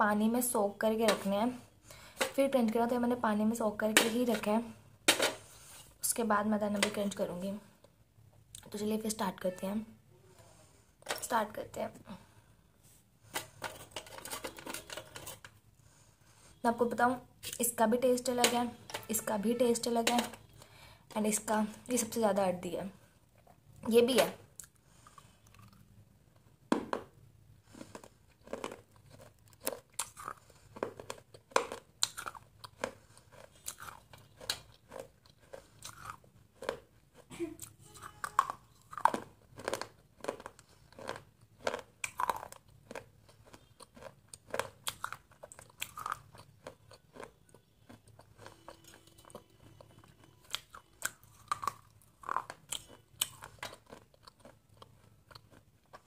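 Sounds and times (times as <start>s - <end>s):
person chewing crunchy food: 24.6s - 26.0s, 26.8s - 56.0s.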